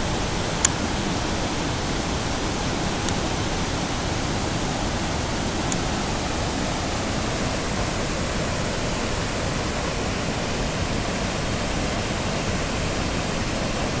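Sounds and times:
water rushing over rocks: 0:00.0 - 0:14.0.

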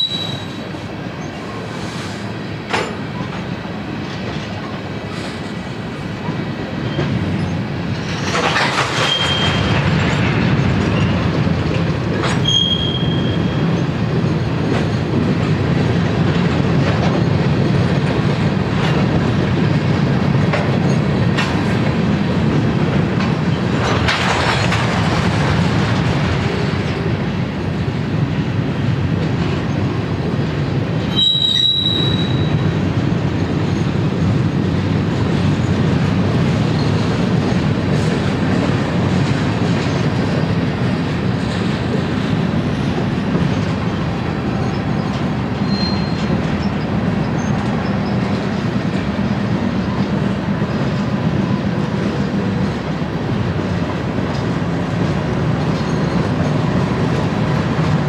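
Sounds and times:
high-pitched wheel squeal: 0:00.0 - 0:00.6, 0:09.0 - 0:09.7, 0:12.4 - 0:13.6, 0:31.1 - 0:32.6, 0:45.6 - 0:46.3
freight train wheels rumbling on rail: 0:00.0 - 0:58.0.

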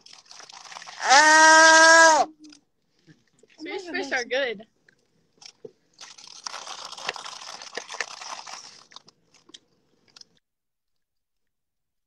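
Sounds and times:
crunchy chewing of gummy candy: 0:00.0 - 0:02.1, 0:05.4 - 0:10.4.

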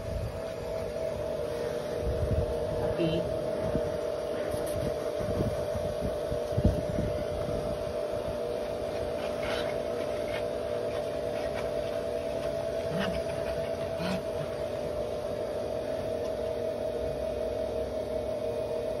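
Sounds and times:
blow dryer running: 0:00.0 - 0:19.0.

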